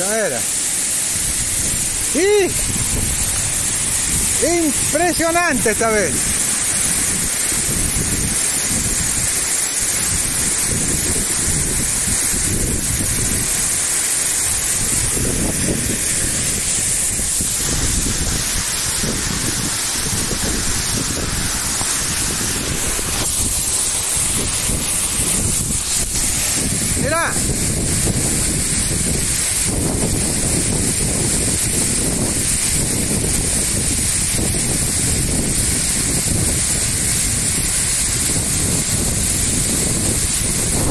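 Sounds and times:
waterfall crashing onto rock: 0:00.0 - 0:40.9.

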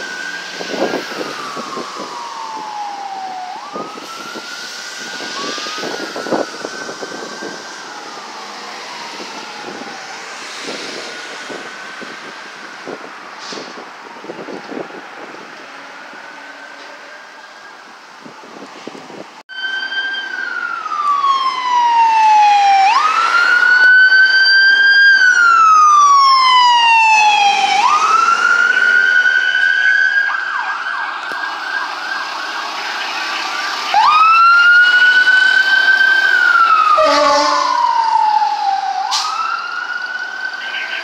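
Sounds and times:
siren rapid yelp: 0:00.0 - 0:13.0, 0:19.5 - 0:41.0
emergency siren wailing: 0:00.0 - 0:41.0
low horn blast: 0:36.9 - 0:38.0.

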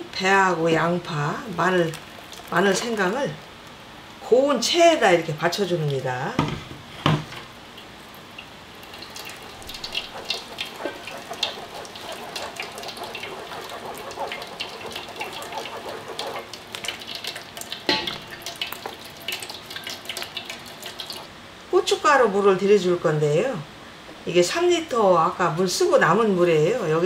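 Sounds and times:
wet pulp squelching through sieve: 0:01.1 - 0:03.8, 0:08.8 - 0:21.3.

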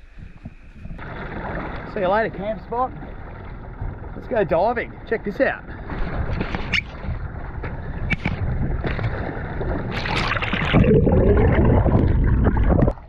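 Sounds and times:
muffled underwater rushing and bubbling: 0:00.0 - 0:13.0
wind noise on microphone: 0:06.0 - 0:13.0
splash into water: 0:08.1 - 0:13.0.

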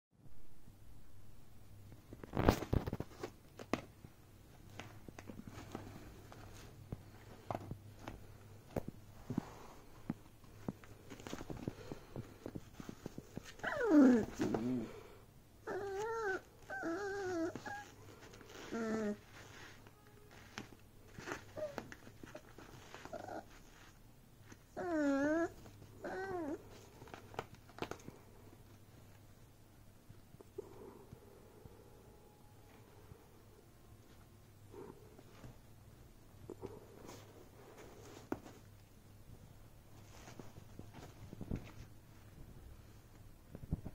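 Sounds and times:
puppy scratching fabric bag: 0:10.8 - 0:14.9, 0:15.7 - 0:28.0.

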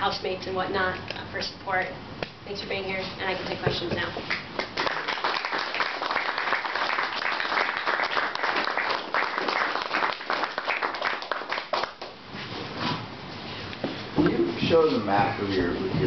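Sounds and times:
audience applauding: 0:04.3 - 0:12.2.

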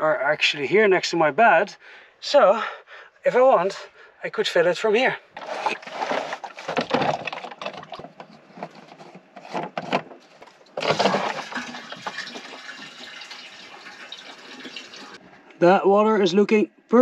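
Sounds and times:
water pouring and splashing: 0:10.7 - 0:15.2.

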